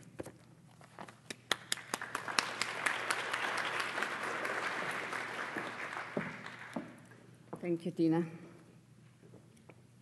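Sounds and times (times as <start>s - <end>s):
audience applauding: 1.5s - 7.1s.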